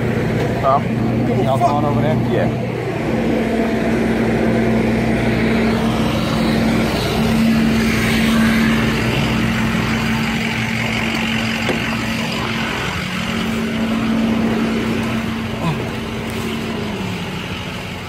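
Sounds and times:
vehicle engine idling: 0.0s - 18.0s.

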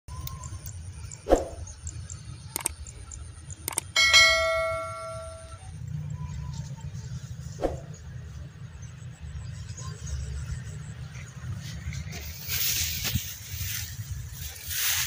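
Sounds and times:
sharp mouse clicks: 2.5s - 3.0s, 3.6s - 3.9s
loud bell ding: 4.0s - 5.7s.

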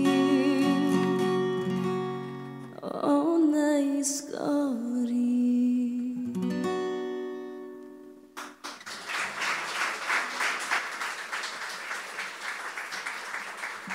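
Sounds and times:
acoustic guitar chord ringing: 0.0s - 2.8s
audience applause: 8.4s - 13.9s.

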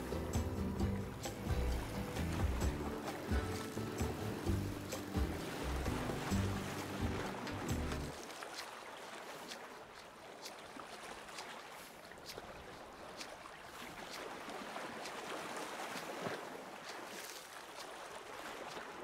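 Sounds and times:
music: 0.0s - 8.1s
water lapping and trickling: 0.0s - 19.0s
water splashes and drips: 0.0s - 19.0s.

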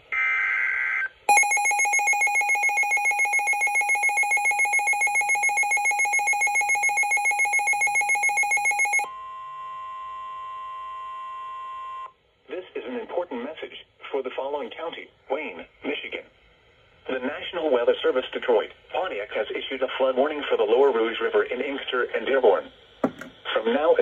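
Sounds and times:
fast loud alarm beeps: 1.3s - 9.1s
steady warning tone: 1.3s - 9.1s.

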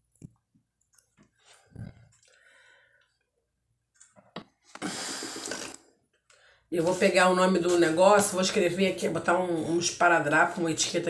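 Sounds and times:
small mouth sounds: 1.5s - 2.4s, 4.7s - 5.9s.

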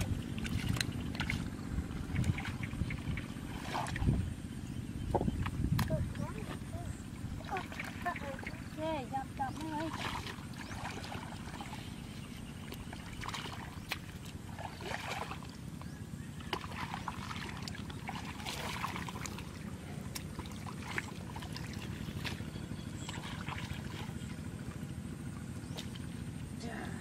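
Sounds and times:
steady low rumble: 0.0s - 27.0s
hands splashing in muddy water: 2.1s - 4.2s, 9.4s - 12.0s, 12.6s - 15.6s, 16.4s - 24.5s.

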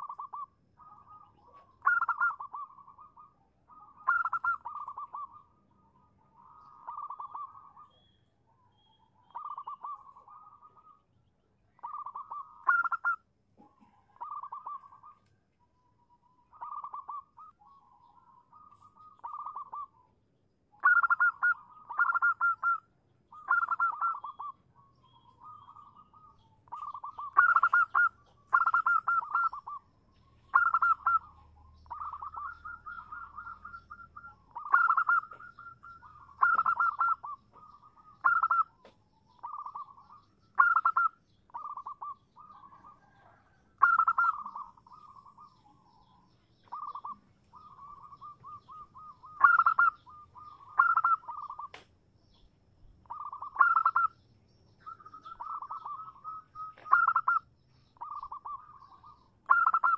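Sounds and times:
dove rolling coos: 0.0s - 5.6s, 11.8s - 15.1s, 16.5s - 20.0s, 20.8s - 24.5s, 25.4s - 29.8s, 30.5s - 38.8s, 39.4s - 51.8s, 53.0s - 54.1s, 54.8s - 57.4s, 58.0s - 59.9s.

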